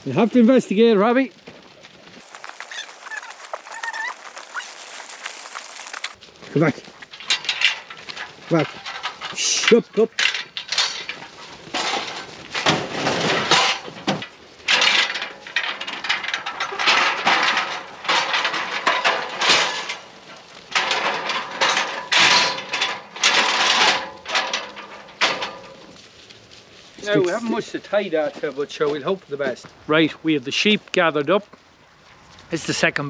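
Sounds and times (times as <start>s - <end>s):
metallic clinking of gates: 7.2s - 25.9s.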